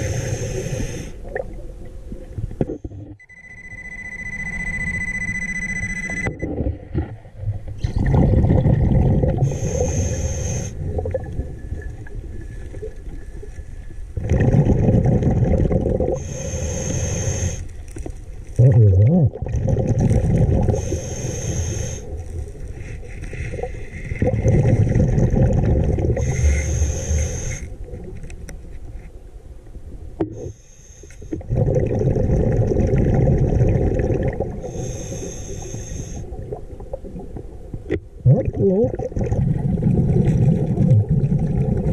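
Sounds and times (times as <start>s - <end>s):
regulator inhale hiss: 0.0s - 1.2s, 9.4s - 10.8s, 16.2s - 17.8s, 20.7s - 24.2s, 26.2s - 27.7s, 30.4s - 31.4s, 34.6s - 36.3s
exhaled bubbles rumbling: 6.3s - 10.0s, 10.8s - 16.3s, 18.5s - 20.9s, 22.1s - 26.4s, 31.4s - 34.8s, 36.2s - 41.9s.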